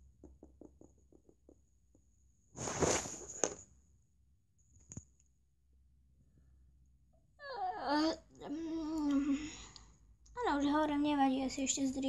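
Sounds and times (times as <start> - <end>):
plastic doll tapping on wooden floor: 0.0 - 2.1
noisy rustle: 2.6 - 3.6.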